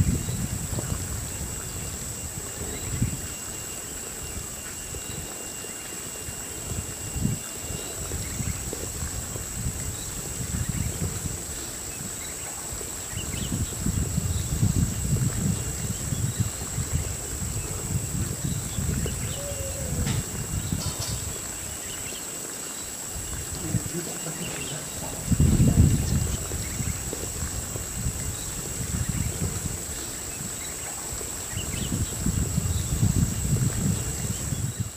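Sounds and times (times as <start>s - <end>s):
wind buffeting microphone: 0.0s - 5.5s, 6.1s - 34.9s
high-pitched insect drone: 0.0s - 34.9s.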